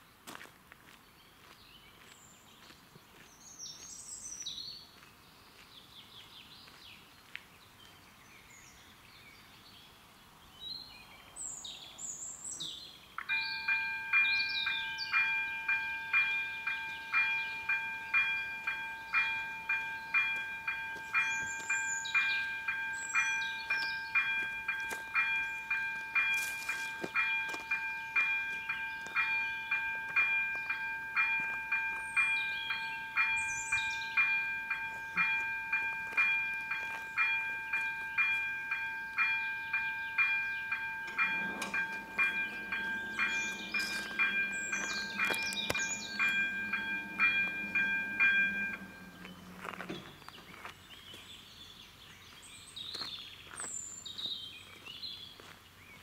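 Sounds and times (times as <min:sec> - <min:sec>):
birds chirping: 0:00.9 - 0:56.0
level crossing bell dinging: 0:13.3 - 0:50.0.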